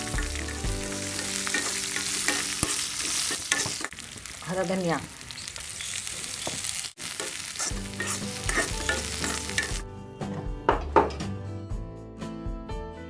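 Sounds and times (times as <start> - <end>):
background music with low notes: 0.0 - 2.3, 7.7 - 13.0
spices sizzling in hot oil: 0.0 - 9.9
spoon scraping a pan: 0.1 - 4.0, 5.8 - 9.8.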